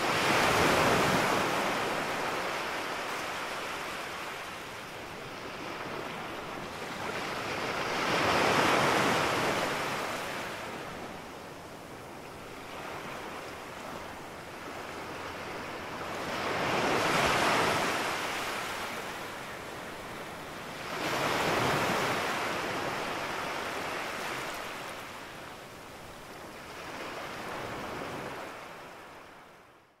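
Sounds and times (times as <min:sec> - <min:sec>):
waves breaking on sandy beach: 0:00.0 - 0:29.8.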